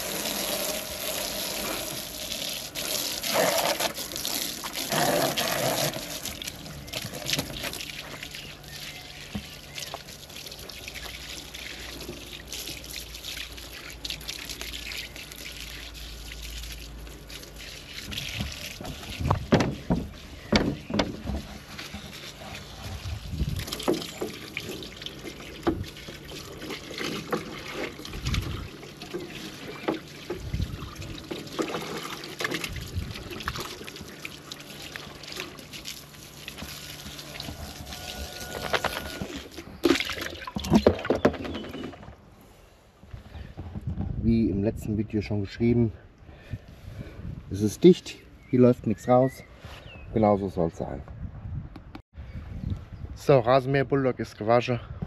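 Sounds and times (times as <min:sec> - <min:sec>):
hose water spraying and splashing: 0:00.0 - 0:40.8.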